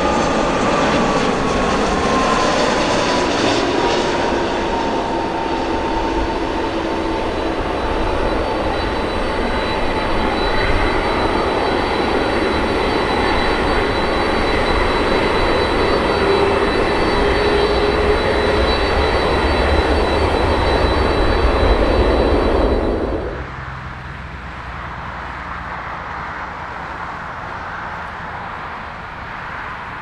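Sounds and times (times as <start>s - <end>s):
jet engines roaring and whining: 0.0s - 30.0s
low rumble: 17.8s - 24.0s.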